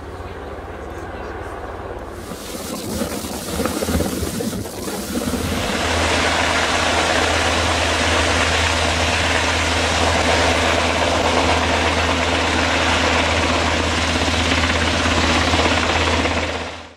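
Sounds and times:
helicopter rotors thrumming: 0.0 - 16.9.

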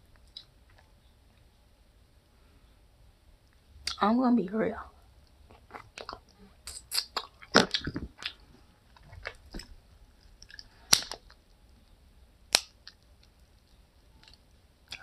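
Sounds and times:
person chewing corn on the cob: 5.5 - 8.4, 9.0 - 11.4.

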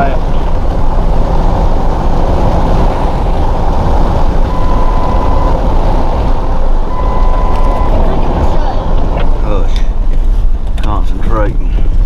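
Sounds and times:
truck engine and tyres rumbling: 0.0 - 12.0
steady beep: 4.4 - 5.8, 6.8 - 8.6.

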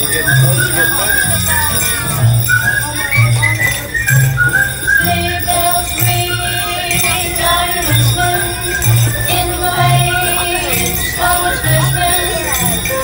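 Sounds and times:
sleigh bells jingling: 0.0 - 13.0.

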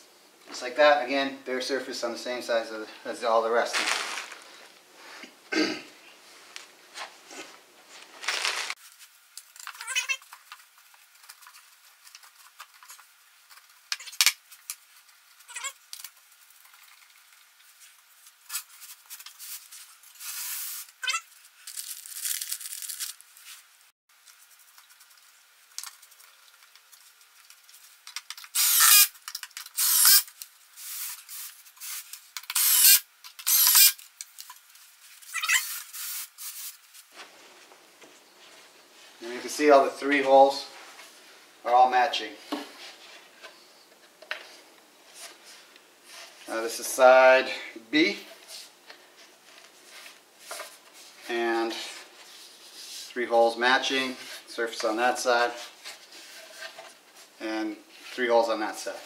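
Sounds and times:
short rustling bursts: 3.6 - 5.2, 6.4 - 9.2.

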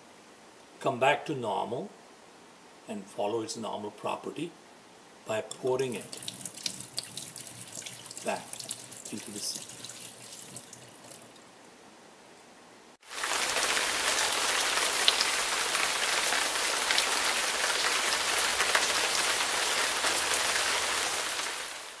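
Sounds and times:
rain-like hiss with crackles: 0.0 - 22.0
water trickling into sink: 5.9 - 11.4.

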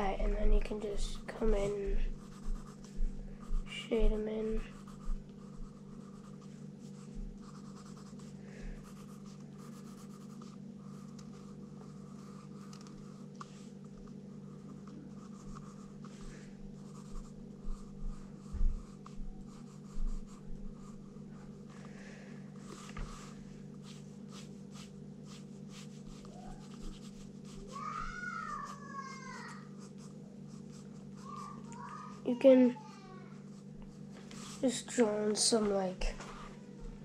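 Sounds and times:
steady low hum: 0.0 - 37.0
pencil scratching on paper: 0.7 - 13.6, 14.3 - 21.5, 22.6 - 27.8, 28.5 - 32.1.

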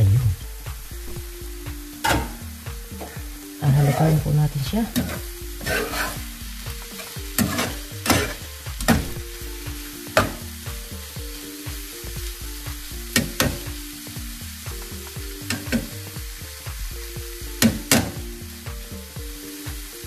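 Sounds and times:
vegetables sizzling in a frying pan: 0.0 - 20.0
spatula scraping a pan: 5.0 - 6.3, 6.9 - 9.1.

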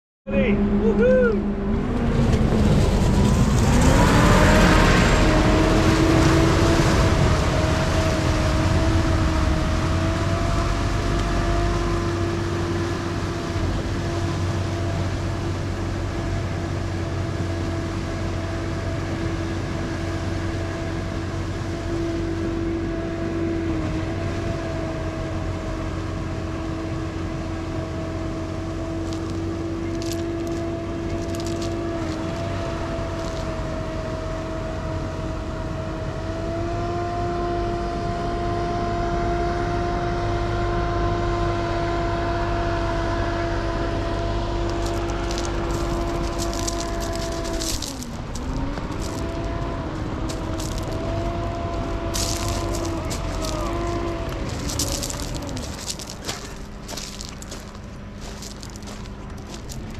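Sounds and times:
low rumble: 0.3 - 18.6, 42.1 - 59.9
drone propeller hum: 0.4 - 59.9.

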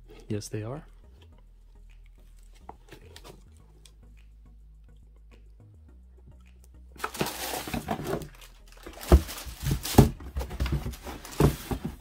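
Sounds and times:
cardboard and paper rustling: 7.0 - 12.0.

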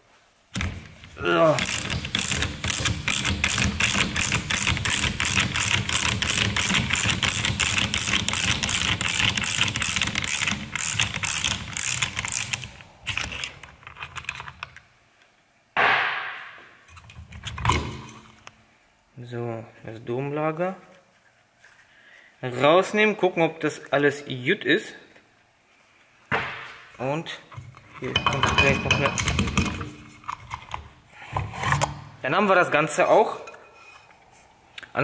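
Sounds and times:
ratchet clicking: 1.6 - 12.8.

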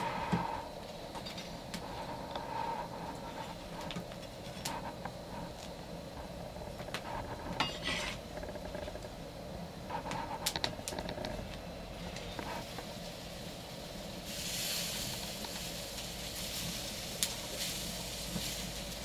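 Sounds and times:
soft even hiss: 11.5 - 19.0.

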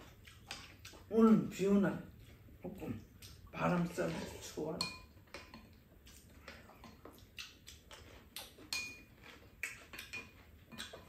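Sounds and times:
utensils clinking against bowls: 8.6 - 11.0.

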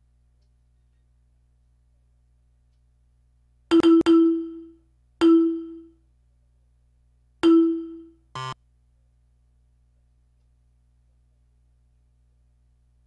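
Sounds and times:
bell-like alert chimes: 3.7 - 5.9, 7.4 - 8.1.

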